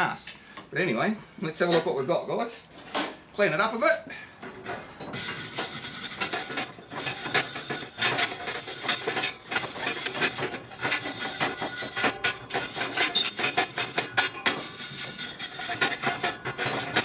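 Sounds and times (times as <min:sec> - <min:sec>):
wire brush scrubbing metal: 0:05.1 - 0:17.0.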